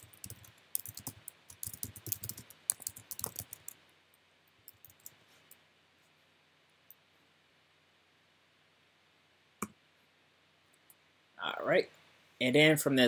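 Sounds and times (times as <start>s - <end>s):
typing on computer keyboard: 0.0s - 3.8s, 4.7s - 5.2s.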